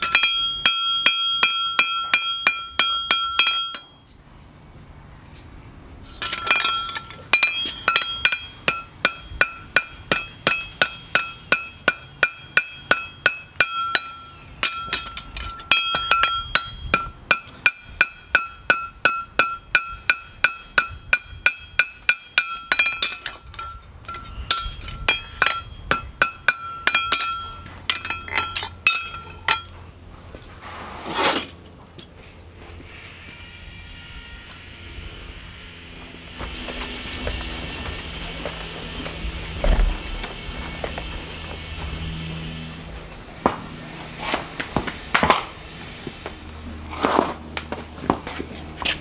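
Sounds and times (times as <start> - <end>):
hammer striking steel: 0.0 - 4.0, 6.2 - 29.8.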